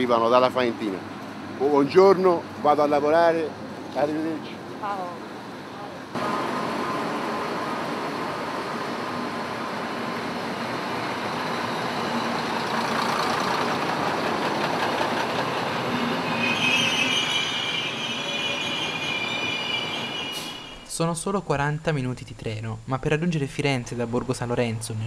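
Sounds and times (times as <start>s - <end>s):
wheels rumbling over track: 0.0s - 20.9s
high wheel squeal: 9.8s - 20.9s.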